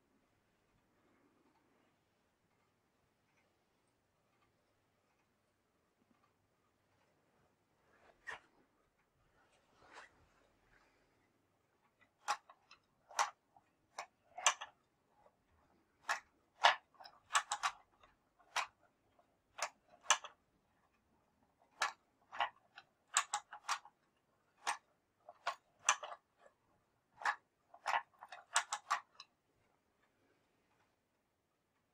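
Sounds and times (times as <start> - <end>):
wooden crank mechanism clacking: 11.9 - 29.3.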